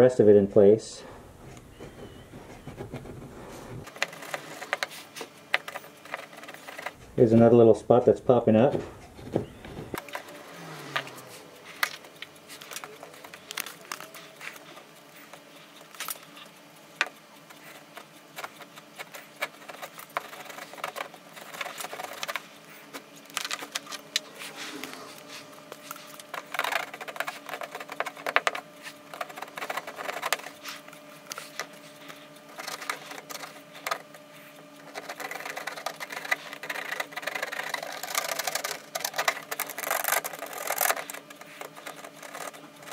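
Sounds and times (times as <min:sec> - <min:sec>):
faint steady hum: 0:00.0 - 0:42.9
plastic welder scraping wire mesh: 0:34.8 - 0:42.9.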